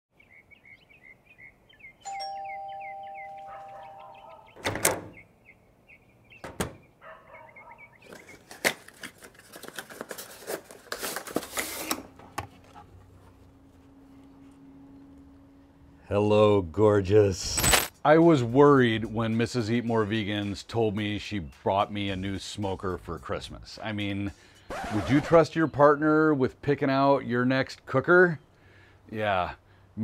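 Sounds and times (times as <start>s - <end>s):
birds chirping: 0.1s - 8.6s
two-note doorbell chime: 2.1s - 4.4s
cardboard box crackling: 8.1s - 12.0s.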